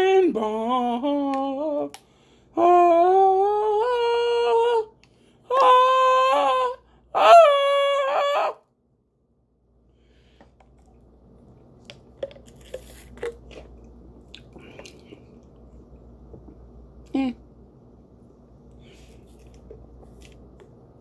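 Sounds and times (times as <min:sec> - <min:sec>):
man humming: 0:05.5 - 0:08.6
sipping through metal straw: 0:12.2 - 0:13.7.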